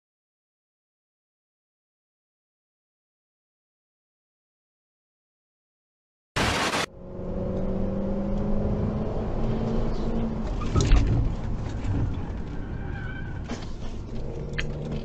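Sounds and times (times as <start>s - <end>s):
car engine and road noise: 6.4s - 15.0s.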